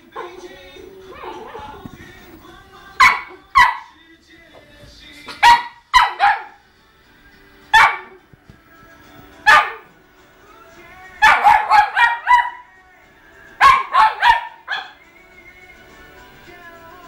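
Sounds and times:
dog barking sharply: 3.0 - 3.8, 5.4 - 6.6, 11.2 - 12.6, 13.6 - 15.0.

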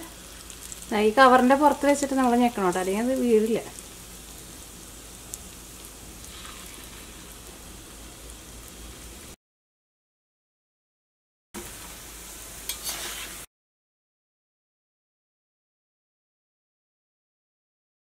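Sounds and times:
batter sizzling in hot oil: 0.0 - 9.4, 11.6 - 13.5.

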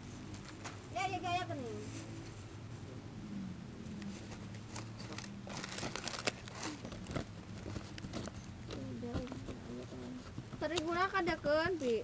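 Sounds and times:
crinkling: 4.0 - 11.0.

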